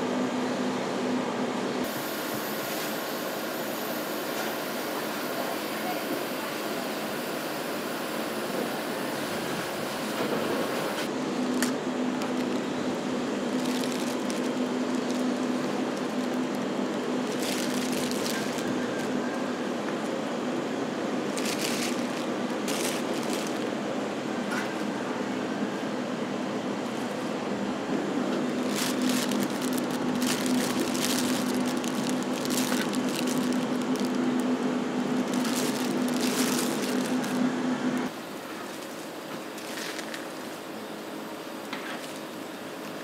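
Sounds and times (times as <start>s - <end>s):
ice cream machine motor hum: 0.0s - 43.0s
plastic bags rustling: 11.4s - 12.8s, 13.4s - 19.2s, 21.2s - 23.8s, 28.4s - 40.7s.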